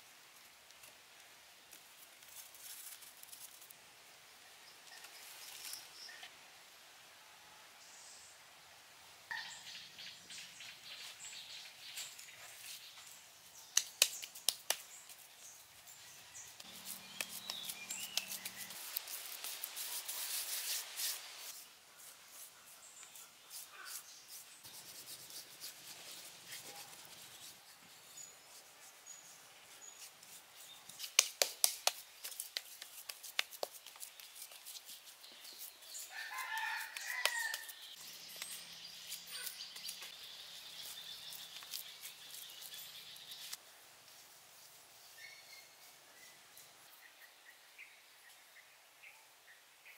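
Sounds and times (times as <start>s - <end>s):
hand slapping wet mud: 13.8s - 14.9s, 31.0s - 34.6s
rooster crowing: 36.1s - 37.8s.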